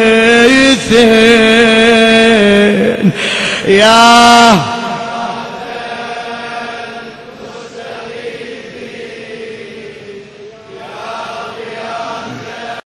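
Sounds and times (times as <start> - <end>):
man chanting: 0.0 - 5.8.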